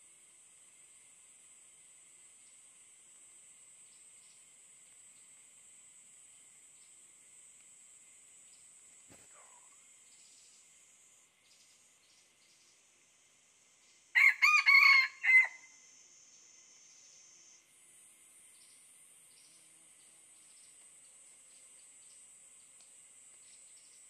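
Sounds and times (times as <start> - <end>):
faint high-pitched hum: 0.0 - 24.0
rooster crowing: 14.2 - 15.7.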